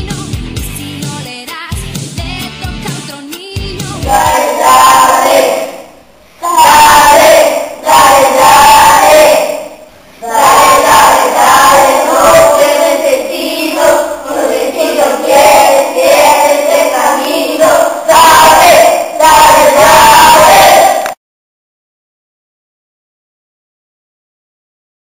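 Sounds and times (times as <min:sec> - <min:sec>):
children singing loudly: 0:04.0 - 0:21.1.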